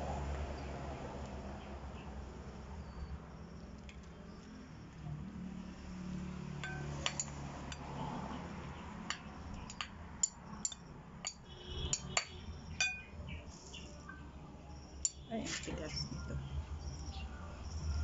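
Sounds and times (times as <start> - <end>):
metal spoons clinking on bowl and pot: 6.6 - 7.9, 9.1 - 13.2, 15.0 - 16.2.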